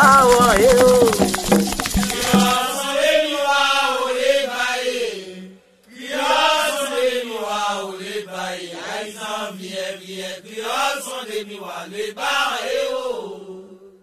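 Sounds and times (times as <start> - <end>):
shaken rattle: 0.0 - 3.1
chanted singing: 0.0 - 14.0.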